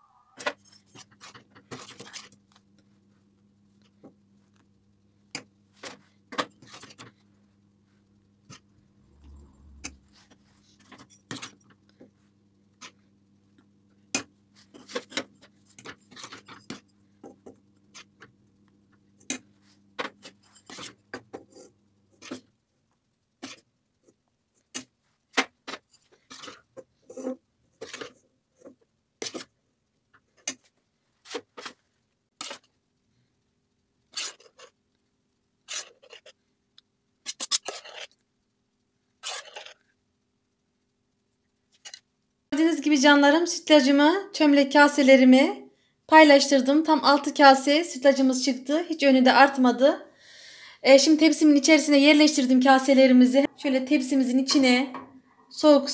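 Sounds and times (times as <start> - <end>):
low steady hum: 0.0 - 25.2
metal ladle scraping steel pot: 37.3 - 38.2, 39.2 - 39.8.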